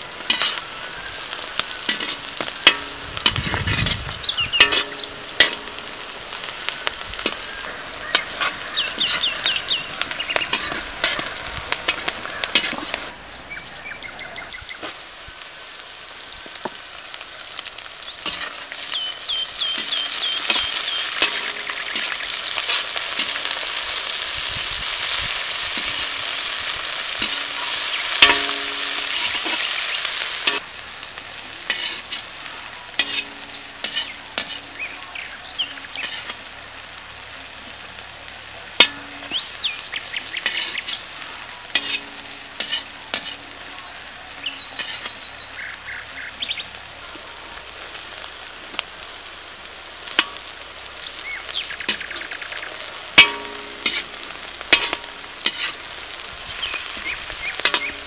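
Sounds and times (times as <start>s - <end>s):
vegetables sizzling in hot oil: 0.0s - 58.0s
metal ladle scraping pan: 0.3s - 0.8s, 1.8s - 6.6s, 7.2s - 13.4s, 18.2s - 19.0s, 19.7s - 24.3s, 25.1s - 30.6s, 31.6s - 34.8s, 35.6s - 36.4s, 40.4s - 43.7s, 44.7s - 45.2s, 53.2s - 55.9s, 56.9s - 58.0s.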